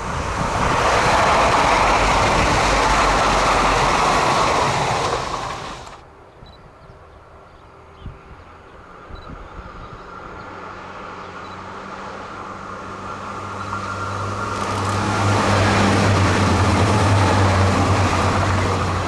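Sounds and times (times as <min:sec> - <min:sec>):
train wheels rushing on rails: 0:00.0 - 0:06.0, 0:12.9 - 0:19.0.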